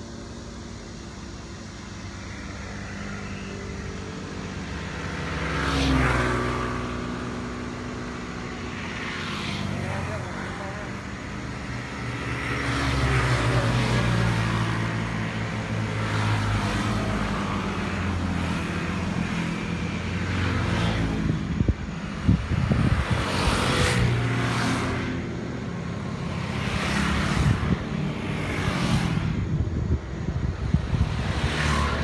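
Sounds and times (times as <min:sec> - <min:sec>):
scooters driving past: 0:00.0 - 0:32.0.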